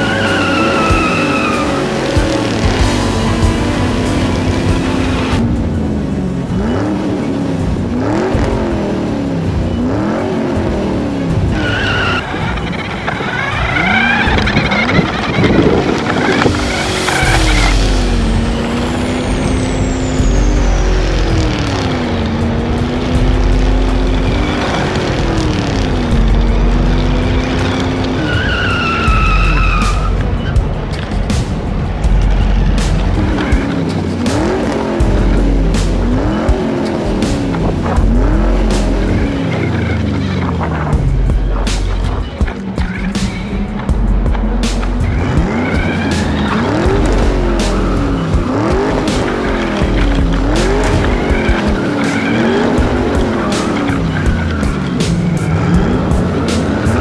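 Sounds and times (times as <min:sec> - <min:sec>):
heavy low rumble: 0:00.0 - 0:28.3, 0:28.9 - 0:57.0
music: 0:00.0 - 0:57.0
racing car engine revving: 0:00.0 - 0:57.0.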